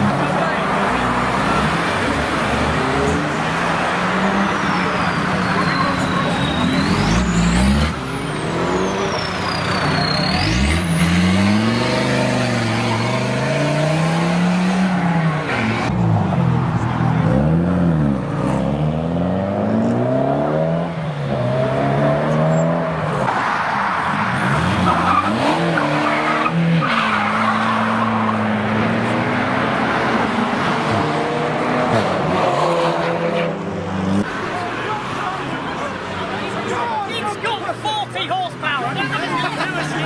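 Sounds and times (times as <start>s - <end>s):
car engine revving: 0.0s - 34.9s
tyres squealing: 3.0s - 14.1s.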